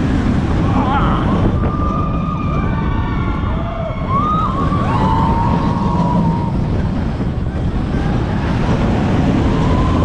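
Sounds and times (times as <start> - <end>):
roller coaster train on track: 0.0 - 10.0
wind rumble on microphone: 0.0 - 10.0
riders screaming: 0.7 - 6.7.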